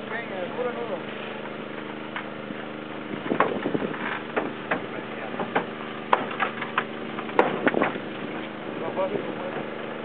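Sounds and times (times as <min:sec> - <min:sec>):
power unit engine running: 0:00.0 - 0:10.0
cutter cracking and clanking metal: 0:03.2 - 0:08.6.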